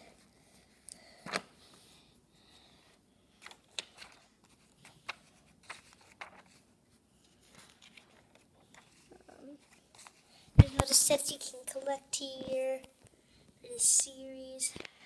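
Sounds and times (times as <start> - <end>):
paper rustling: 3.4 - 11.0.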